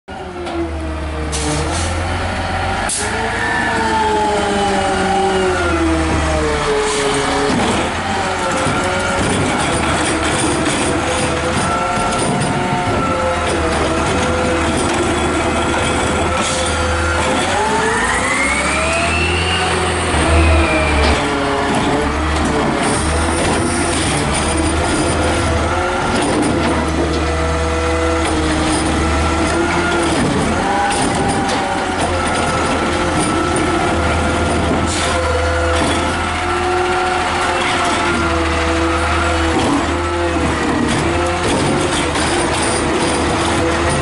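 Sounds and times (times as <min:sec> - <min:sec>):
garbage truck engine idling and revving: 0:00.1 - 0:44.0
rising whine: 0:17.0 - 0:23.1.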